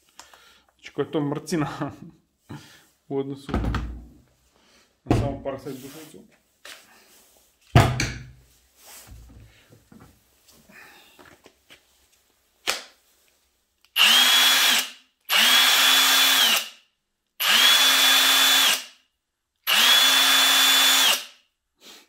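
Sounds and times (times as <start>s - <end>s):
impact wrench motor whine: 14.0s - 16.8s, 17.4s - 18.9s, 19.7s - 21.3s.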